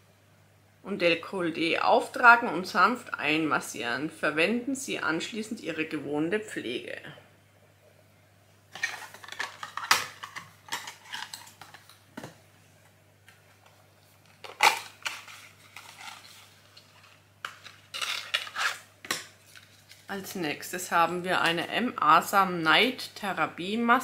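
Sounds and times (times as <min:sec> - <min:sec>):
cardboard rustling and scraping: 0:13.4 - 0:18.8.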